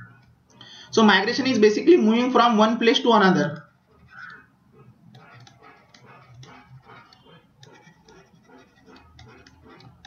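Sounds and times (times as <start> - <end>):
stylus scratching on pen tablet: 2.9 - 10.0.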